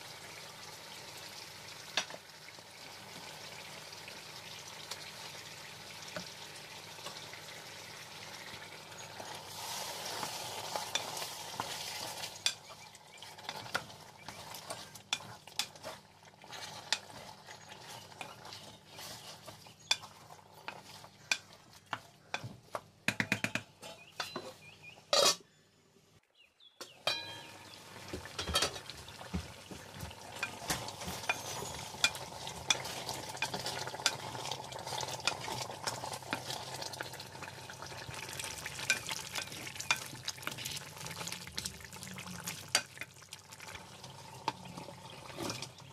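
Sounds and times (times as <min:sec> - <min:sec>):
curry sizzling in a pot: 0:00.0 - 0:23.0, 0:26.9 - 0:45.9
wooden spoon scraping a pot: 0:09.0 - 0:22.8, 0:29.7 - 0:37.0.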